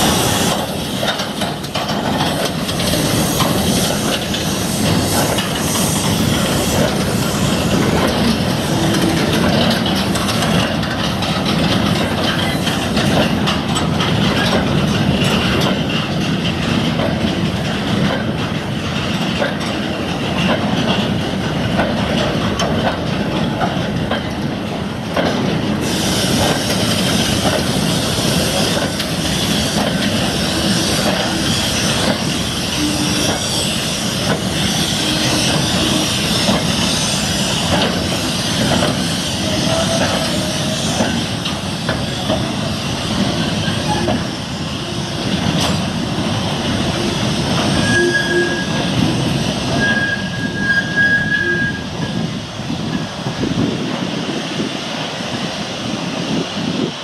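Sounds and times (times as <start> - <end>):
train wheels rumbling on rails: 0.0 - 57.0
wheel flanges squealing: 28.4 - 41.2, 46.9 - 52.3.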